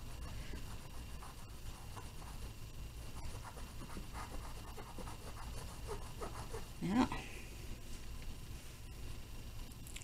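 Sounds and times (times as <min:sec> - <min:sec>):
cotton swab scratching on canvas: 0:00.0 - 0:06.8
low steady hum: 0:00.0 - 0:10.0.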